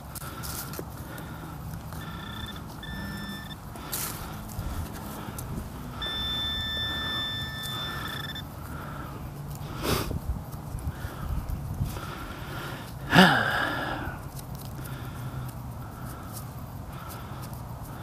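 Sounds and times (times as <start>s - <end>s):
metal detector electronic tone: 1.9s - 4.4s, 5.1s - 8.5s.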